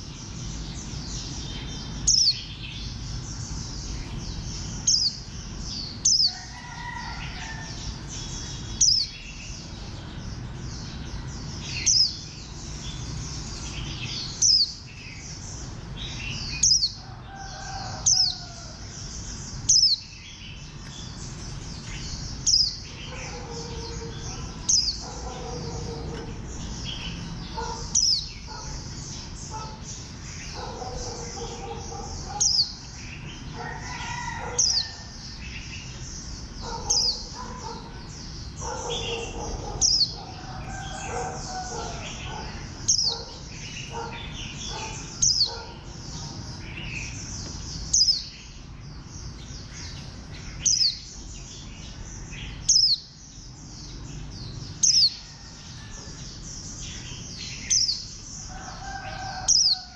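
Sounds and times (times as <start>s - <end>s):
bird twittering song: 0.0s - 59.9s.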